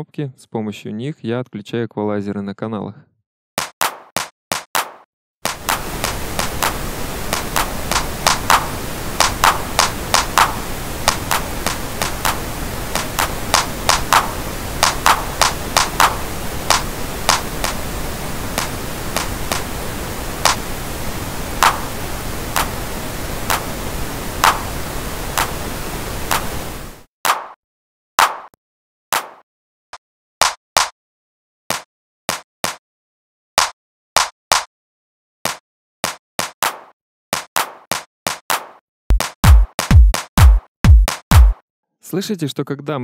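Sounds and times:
electronic hand claps: 3.6 - 17.8, 20.4 - 20.6, 21.6 - 21.9, 24.4 - 24.6, 28.2 - 28.6, 35.5 - 41.6
steady pink noise: 5.5 - 27.1.

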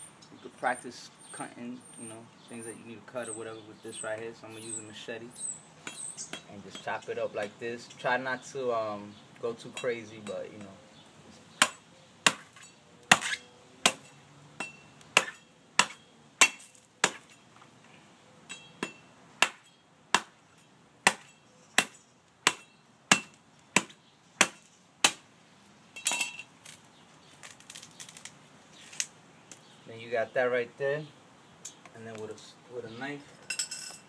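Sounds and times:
machete chopping coconut: 11.6 - 17.4, 18.5 - 20.4, 21.0 - 25.2.

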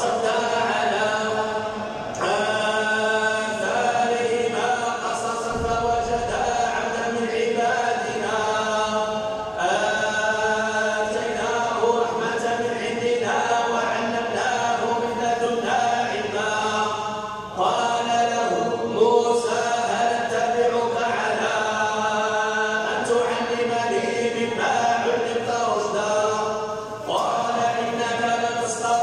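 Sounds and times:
man chanting recitation: 0.0 - 29.0.

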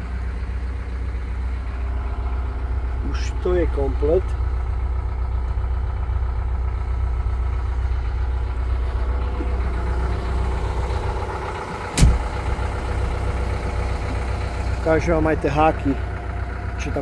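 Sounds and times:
engine idling with low hum: 0.0 - 17.0
sharp knock: 12.0 - 12.3.

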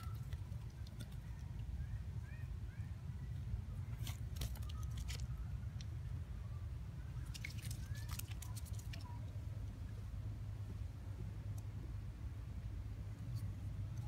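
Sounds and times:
clicks and scrapes on tree bark: 0.0 - 1.7, 3.9 - 5.9, 7.2 - 9.1
steady low rumble: 0.0 - 14.0.

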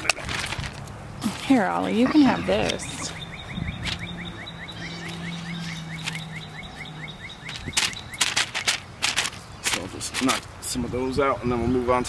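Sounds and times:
sharp rustling clicks: 0.0 - 1.0, 3.8 - 4.1, 5.9 - 6.4, 7.4 - 10.5
bird chirping rapidly: 1.8 - 10.2.

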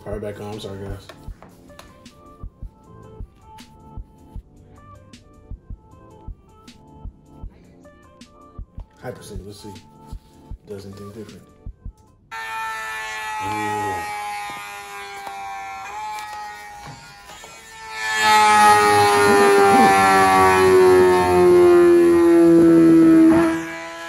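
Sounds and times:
motorcycle engine at high revs: 18.7 - 23.8.

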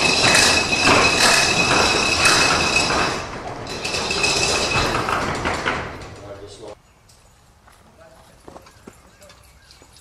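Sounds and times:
chain clinking: 0.0 - 6.4, 8.2 - 10.0
steel roll-up door rattling: 0.0 - 6.8.

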